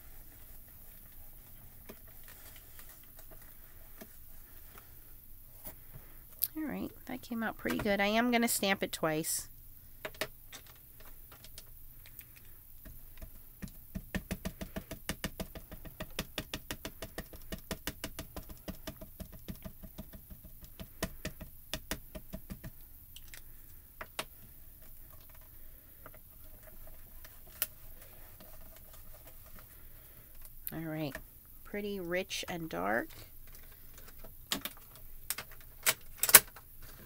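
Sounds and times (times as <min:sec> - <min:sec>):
ink pad tapping on stamp: 0:13.9 - 0:22.8.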